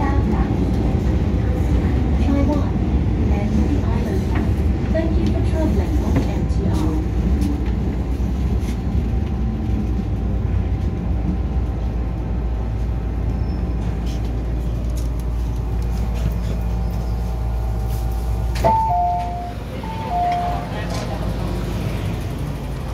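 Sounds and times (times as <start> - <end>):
train low rumble: 0.0 - 22.9
faint train whine: 8.2 - 22.9.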